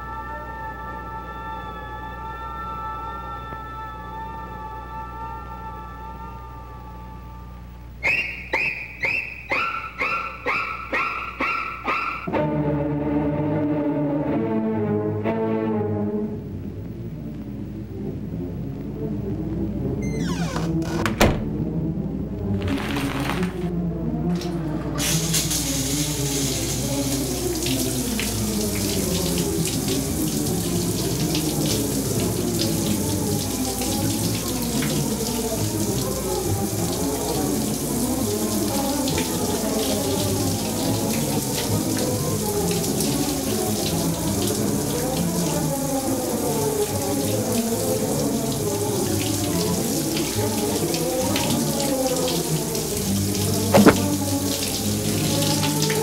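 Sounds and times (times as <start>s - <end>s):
shower spray splashing: 25.0s - 43.9s, 52.6s - 56.0s.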